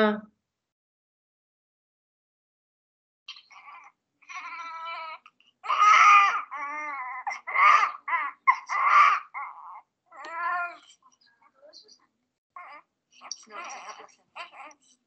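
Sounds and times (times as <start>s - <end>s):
newborn baby crying: 3.3s - 10.9s, 12.6s - 14.8s.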